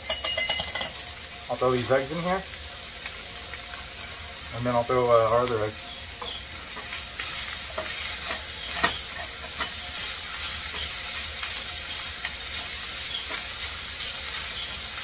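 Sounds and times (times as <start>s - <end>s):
food sizzling in a frying pan: 0.0s - 15.0s
spatula scraping a pan: 6.2s - 14.8s.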